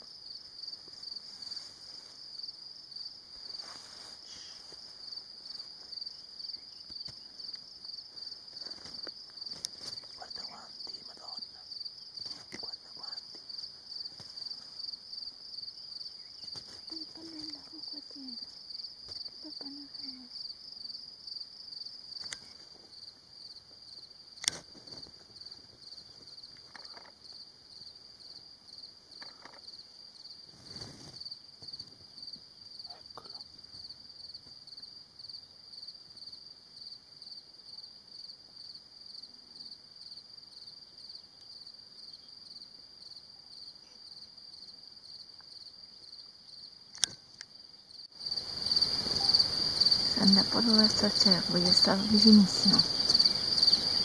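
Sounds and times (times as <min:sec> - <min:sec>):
crickets chirring: 0:00.0 - 0:54.0
sharp clicks: 0:46.9 - 0:47.2.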